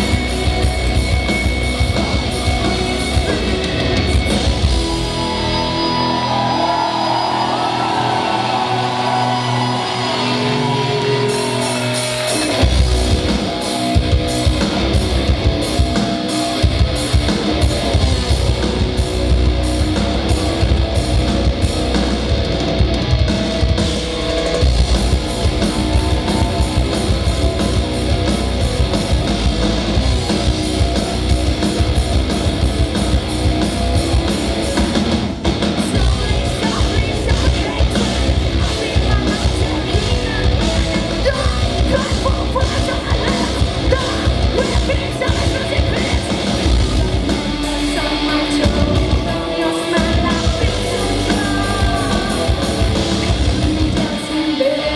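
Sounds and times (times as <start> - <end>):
metal band playing live: 0.0 - 54.9.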